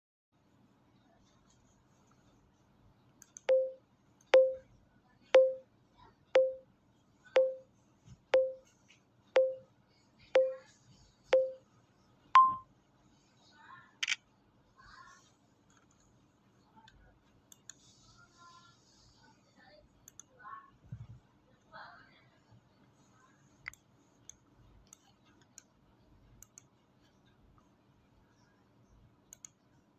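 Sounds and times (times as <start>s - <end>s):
self-timer beep with click: 3.4s - 4.6s, 5.4s - 5.6s, 6.4s - 6.6s, 7.4s - 7.7s, 8.4s - 8.7s, 9.4s - 9.7s, 10.4s - 10.6s, 11.3s - 11.6s, 12.4s - 12.7s
faint sharp clicks: 29.3s - 29.6s.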